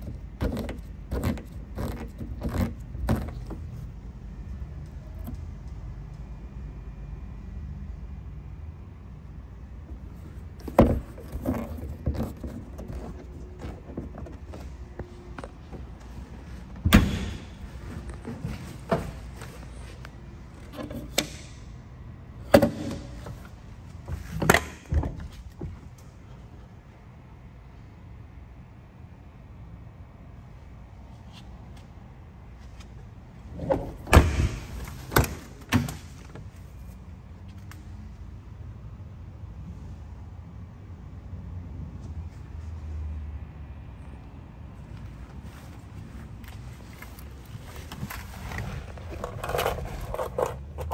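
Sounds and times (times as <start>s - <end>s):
knocks and bumps in car trunk: 10.4s - 19.7s, 22.5s - 25.8s, 33.6s - 36.3s
trunk lid thudding shut: 16.7s - 19.2s, 33.8s - 36.1s
door latch clunks: 16.8s - 17.6s.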